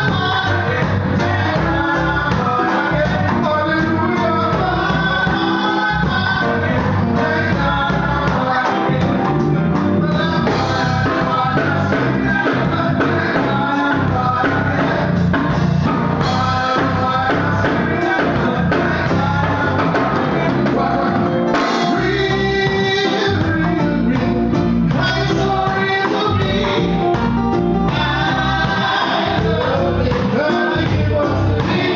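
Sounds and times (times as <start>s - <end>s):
drum kit: 0.0s - 31.9s
keyboard: 0.0s - 31.9s
man singing: 0.0s - 31.9s.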